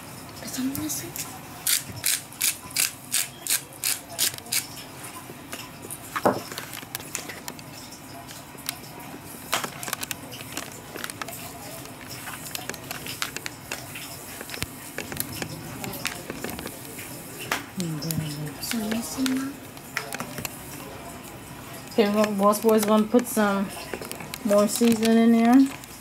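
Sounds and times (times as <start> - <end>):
pepper grinder grinding: 1.6 - 4.7.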